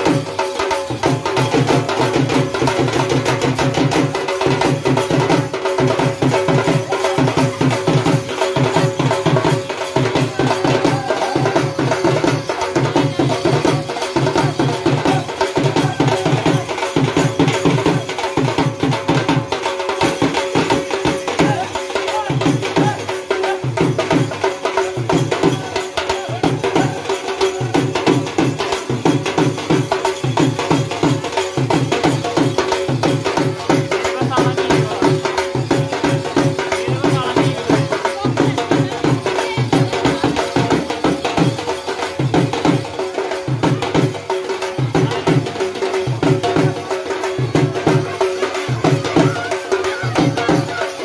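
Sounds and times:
drums beaten in fast rhythm: 0.0s - 51.0s.

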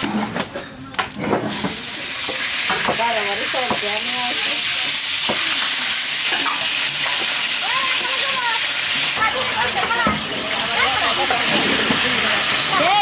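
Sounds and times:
oil sizzling in a pan: 1.4s - 13.0s.

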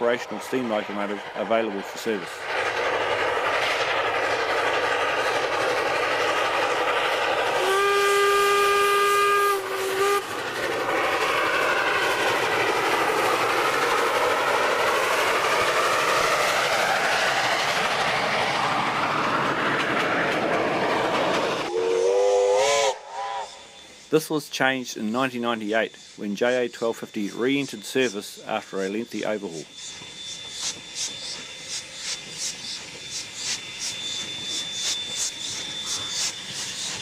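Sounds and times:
wheel and rail noise: 0.0s - 21.8s
steam locomotive passing: 0.0s - 37.0s
locomotive whistle blast: 7.6s - 10.3s, 21.7s - 23.8s.

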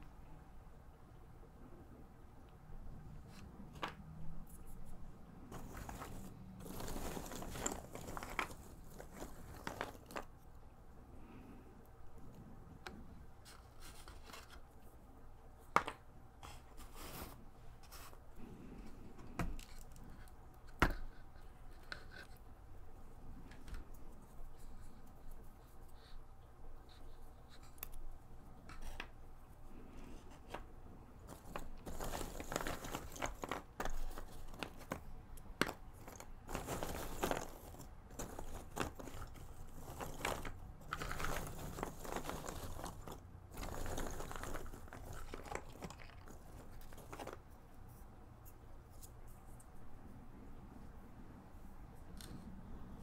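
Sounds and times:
puzzle pieces rustling and clicking: 3.3s - 10.6s, 30.2s - 48.0s.

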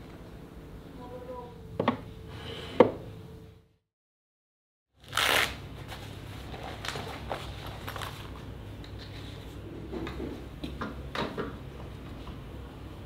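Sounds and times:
low steady hum: 0.0s - 3.8s.

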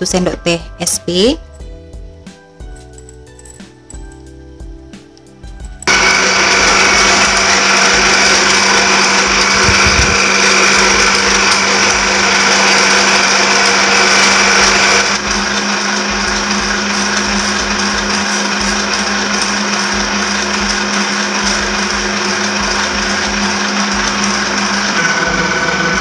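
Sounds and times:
soft background music: 0.0s - 5.9s
stand mixer motor running: 5.8s - 26.0s.

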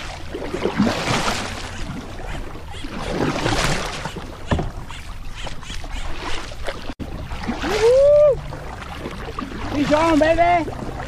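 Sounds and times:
paddle splashing in water: 0.0s - 11.0s.

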